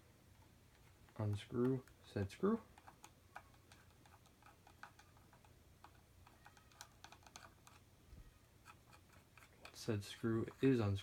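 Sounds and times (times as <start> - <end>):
screwdriver turning a screw: 2.8 - 7.8.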